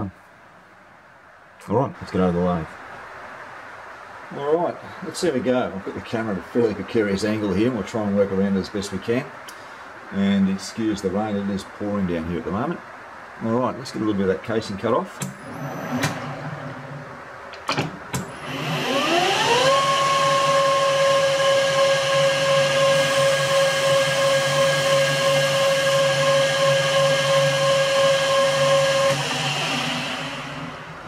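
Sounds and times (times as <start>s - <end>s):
lathe motor whine: 15.2s - 17.3s, 18.1s - 31.0s.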